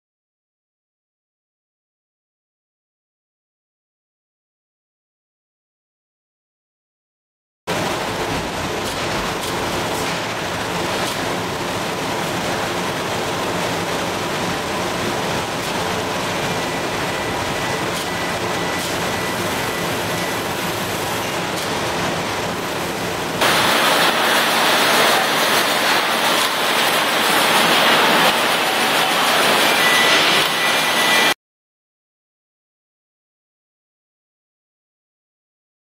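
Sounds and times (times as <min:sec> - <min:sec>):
production line machinery clatter: 0:07.7 - 0:31.4.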